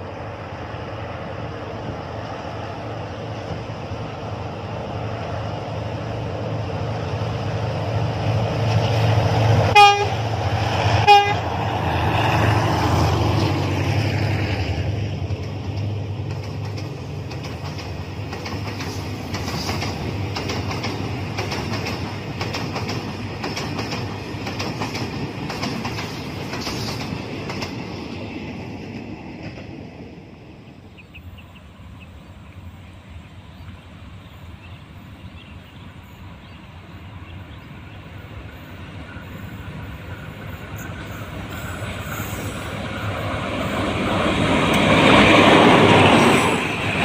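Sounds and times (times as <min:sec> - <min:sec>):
diesel locomotive engine rumbling: 0:00.0 - 0:47.0
train wheels clickety-clack: 0:06.7 - 0:30.2, 0:38.1 - 0:47.0
train horn blasts: 0:09.7 - 0:11.5.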